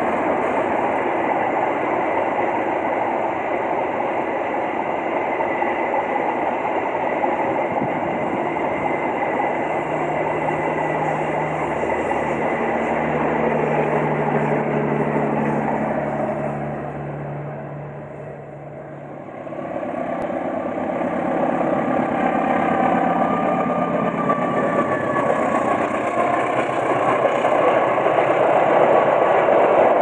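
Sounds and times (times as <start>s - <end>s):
train wheels rushing on track: 0.0s - 30.0s
low engine hum: 8.8s - 25.4s.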